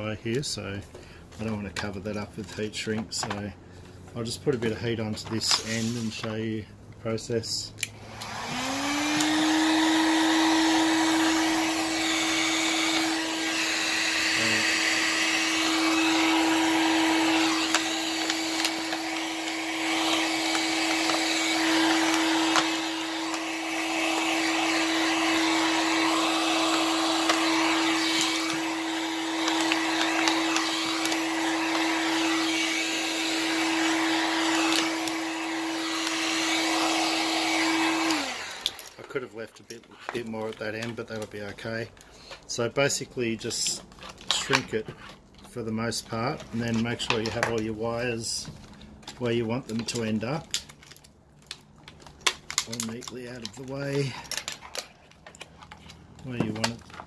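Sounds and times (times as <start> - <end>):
heat gun fan humming: 3.2 - 39.3.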